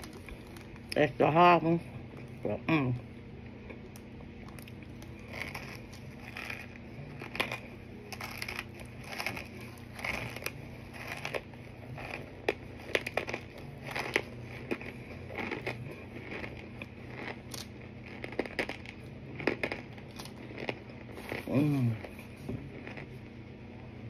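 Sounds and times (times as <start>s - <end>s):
crisp chewing crunches: 0.0s - 1.1s, 3.4s - 23.3s.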